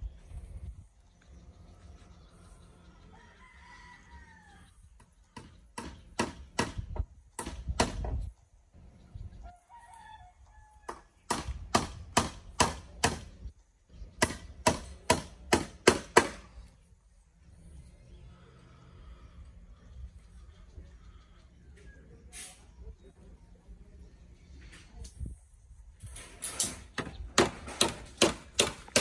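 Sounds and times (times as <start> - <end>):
rooster crowing: 3.0 - 4.8, 9.5 - 11.1.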